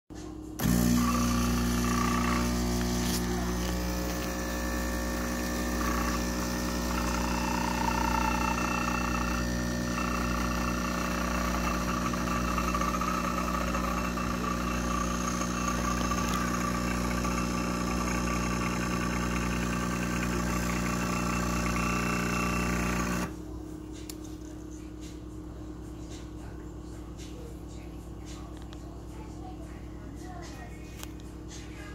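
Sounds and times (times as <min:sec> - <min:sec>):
espresso machine pump humming: 0:00.6 - 0:23.4.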